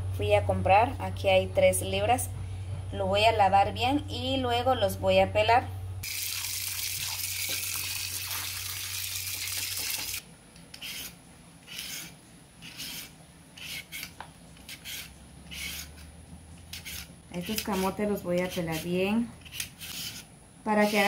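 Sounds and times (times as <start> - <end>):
tap water running into bowl: 6.1 - 10.2
vegetable peeler scraping skin: 10.7 - 21.0.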